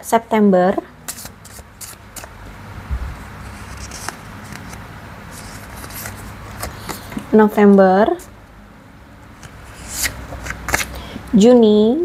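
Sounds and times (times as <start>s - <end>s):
cards clicking and rustling: 1.1s - 2.4s, 3.5s - 4.8s, 5.4s - 7.3s, 9.3s - 11.0s.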